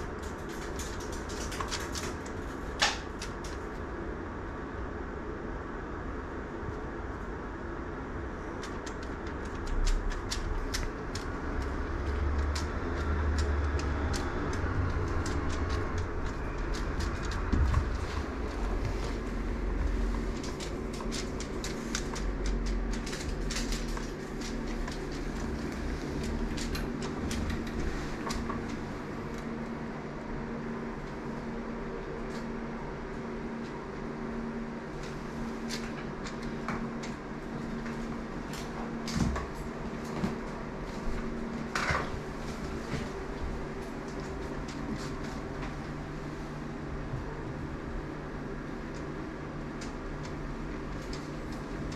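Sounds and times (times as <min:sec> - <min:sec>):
mechanical hum: 0:00.0 - 0:51.9
deep rumble: 0:08.2 - 0:46.3.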